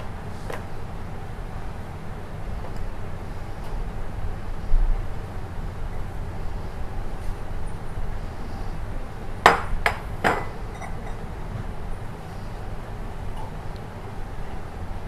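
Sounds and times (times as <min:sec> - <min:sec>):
low background rumble: 0:00.0 - 0:15.0
kitchenware knocks clinking: 0:09.5 - 0:11.2.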